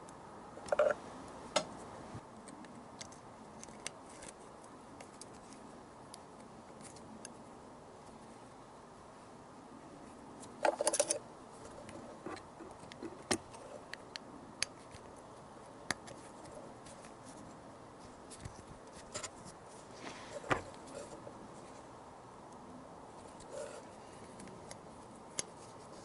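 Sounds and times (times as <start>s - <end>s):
metallic clicks and scraping: 0.6s - 1.8s, 10.4s - 15.2s, 18.3s - 21.8s.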